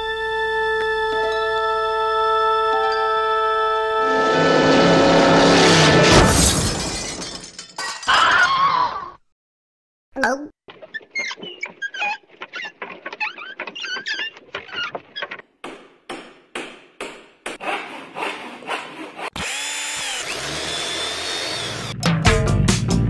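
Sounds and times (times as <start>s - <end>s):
squeaks and rattles: 10.7s - 15.6s
sharp knocks: 14.4s - 17.7s
power drill running: 19.3s - 22.0s.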